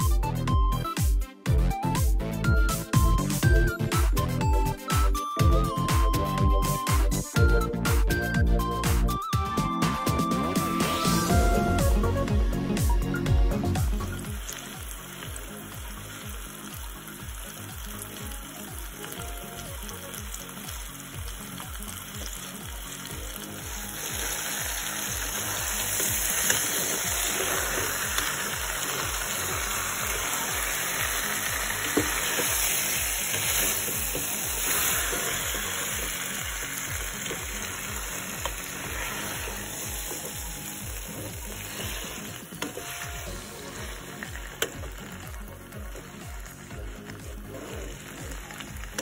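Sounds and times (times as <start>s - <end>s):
meat sizzling in pot: 12.8s - 49.0s.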